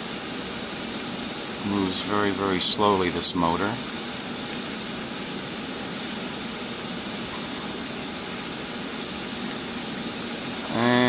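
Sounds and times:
hvac machinery running: 0.0 - 11.0.

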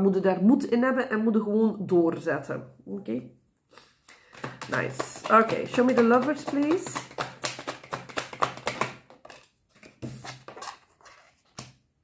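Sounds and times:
cards being shuffled: 4.2 - 11.8.

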